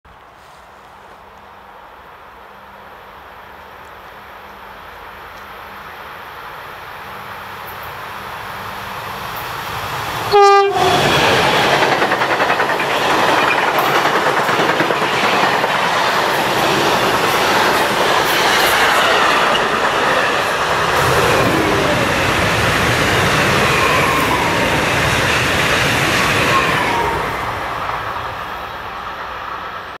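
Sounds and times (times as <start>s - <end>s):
locomotive horn blast: 10.3s - 11.0s
train wheels clattering on rails: 10.8s - 28.6s.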